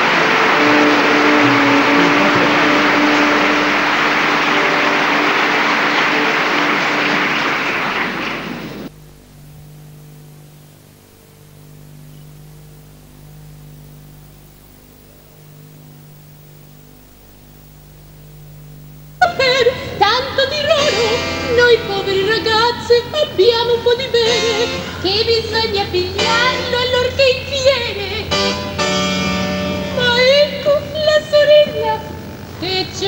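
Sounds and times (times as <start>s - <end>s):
audience applauding: 0.0s - 8.9s
faint low hum: 0.0s - 33.0s
steady tones: 0.0s - 33.0s
woman singing with orchestra: 19.2s - 28.4s, 30.0s - 32.0s.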